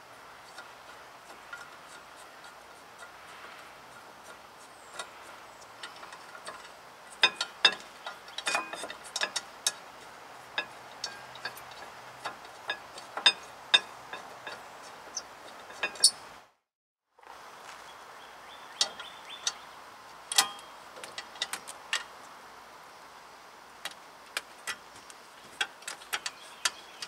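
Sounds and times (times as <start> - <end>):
metal clips clicking and tapping: 5.8 - 9.8.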